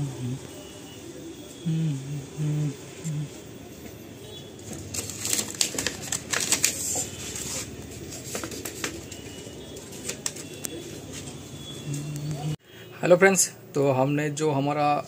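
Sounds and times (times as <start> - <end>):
plastic sheet crinkling and crackling: 4.6 - 11.4.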